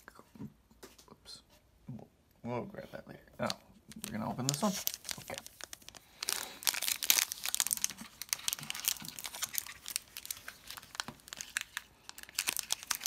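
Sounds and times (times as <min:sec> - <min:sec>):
foil wrapper crinkling and tearing: 0:03.4 - 0:13.0.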